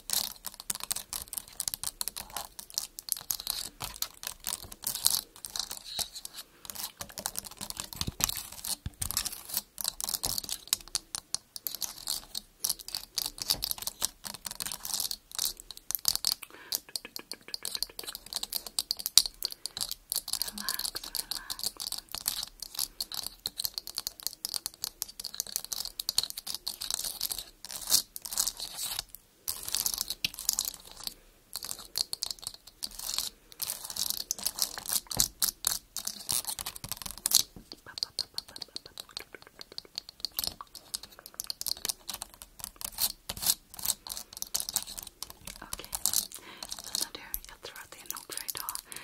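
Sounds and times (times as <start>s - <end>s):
fingernails tapping on lens: 36.8s - 42.5s.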